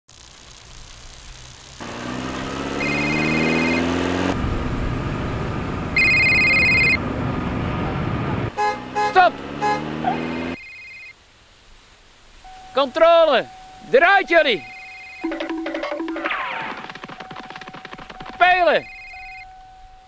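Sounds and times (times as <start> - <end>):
steady rushing noise: 0.1 - 10.0, 15.2 - 19.0
car engine accelerating: 1.6 - 10.6
car horn: 2.8 - 4.0, 8.5 - 10.6.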